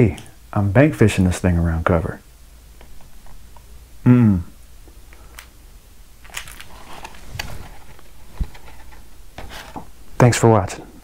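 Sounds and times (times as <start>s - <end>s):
man grunting: 4.0s - 4.5s
handling clicks and rustling: 6.2s - 9.9s.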